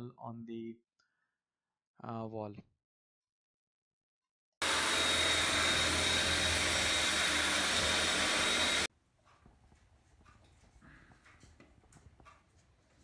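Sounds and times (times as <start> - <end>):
cordless drill boring into tile: 4.6 - 8.9.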